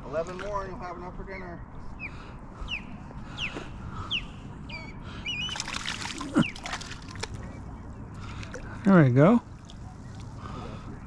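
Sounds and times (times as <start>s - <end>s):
bird chirping: 2.0s - 6.7s
fish splashing at surface: 5.4s - 7.6s.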